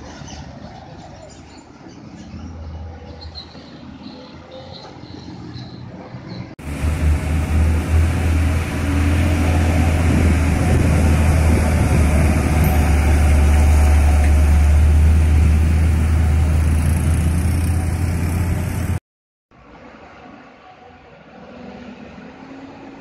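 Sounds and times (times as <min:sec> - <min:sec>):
diesel truck engine rumble: 0:06.6 - 0:19.0.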